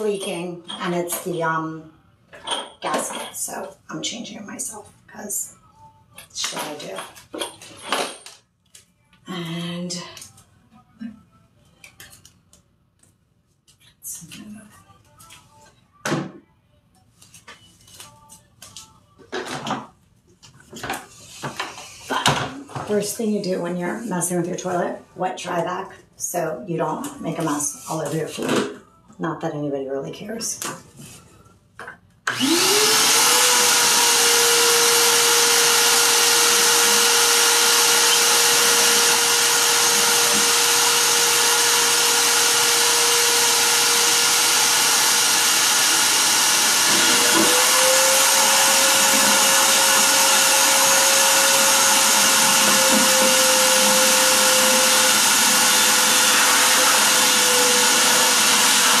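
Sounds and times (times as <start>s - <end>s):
shop vacuum motor whine: 32.3s - 59.0s.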